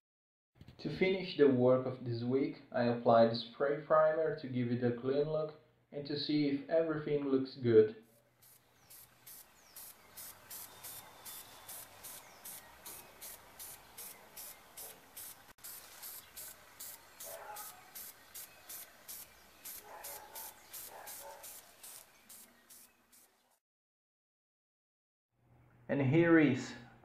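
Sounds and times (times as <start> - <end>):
aerosol spray bursts: 8.4 - 23.4.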